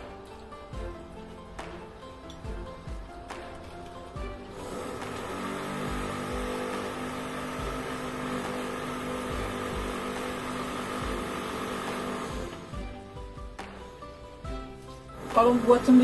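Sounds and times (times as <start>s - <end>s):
power tool droning: 4.3s - 13.0s, 15.2s - 16.0s.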